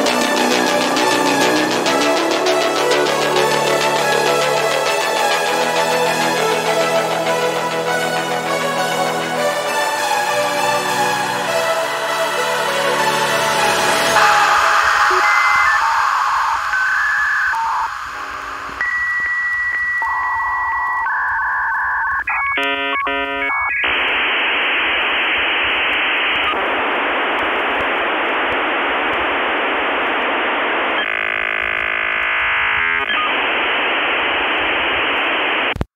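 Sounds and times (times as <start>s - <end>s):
static hiss: 13.6s - 35.9s
modem screech: 14.2s - 24.9s, 30.7s - 35.5s
modem dialing tones: 14.2s - 35.9s.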